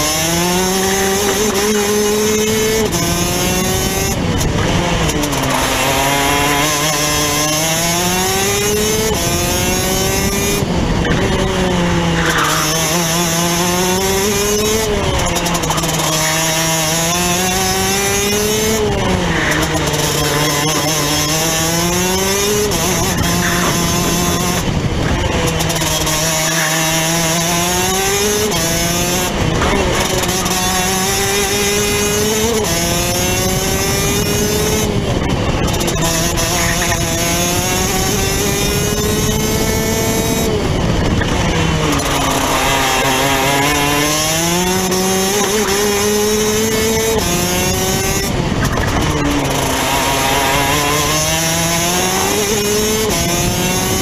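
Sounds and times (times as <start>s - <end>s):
kart engine at racing speed: 0.0s - 54.0s.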